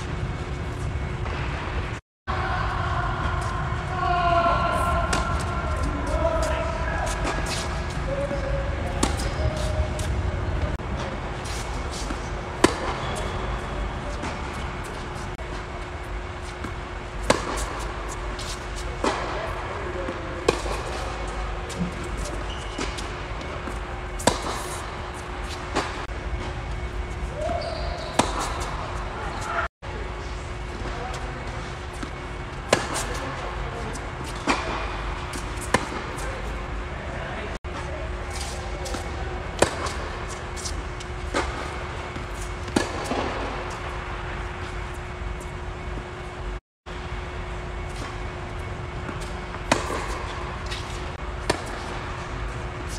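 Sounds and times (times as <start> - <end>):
steady low hum: 0.0 - 52.9
tennis ball hit by racket: 11.5 - 13.0, 17.2 - 17.8, 20.4 - 24.8, 41.3 - 43.8, 49.1 - 52.0
tennis ball hits and bounces: 16.6 - 19.4, 41.3 - 43.8, 49.1 - 52.4.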